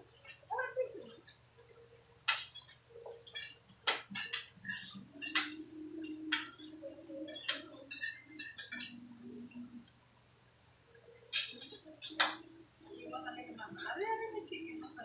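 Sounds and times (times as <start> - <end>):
faint low hum: 0.0 - 15.0
cutlery clinking against plates: 2.3 - 9.6, 10.8 - 12.6.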